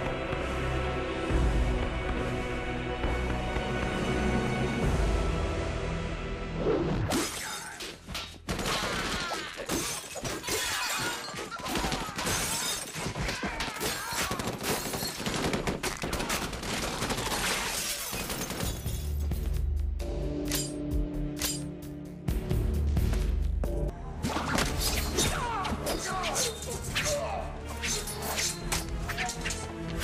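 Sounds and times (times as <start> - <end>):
film music: 0.0 - 7.2, 19.0 - 30.0
impacts and shattering: 7.1 - 19.6.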